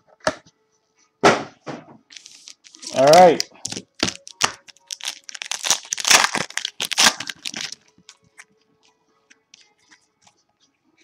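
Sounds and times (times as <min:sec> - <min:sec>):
card wrapper crackling: 0:02.1 - 0:08.4.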